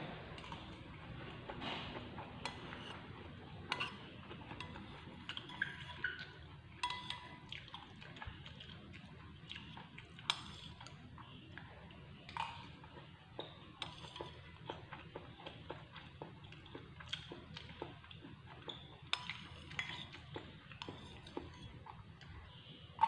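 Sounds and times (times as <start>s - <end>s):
spoon scraping a ceramic plate: 1.6s - 3.1s, 3.7s - 7.2s, 18.7s - 21.8s
wet chewing: 3.7s - 22.5s.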